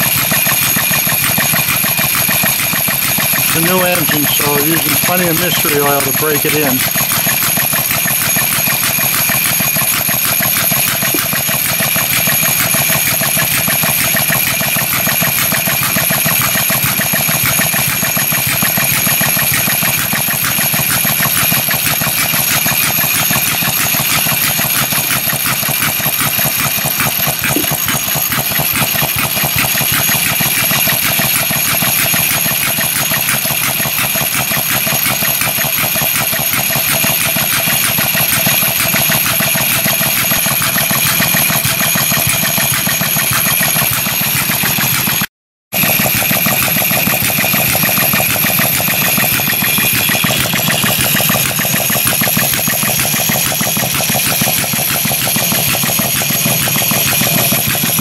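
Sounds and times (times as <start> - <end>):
small gas engine running: 0.0 - 58.0.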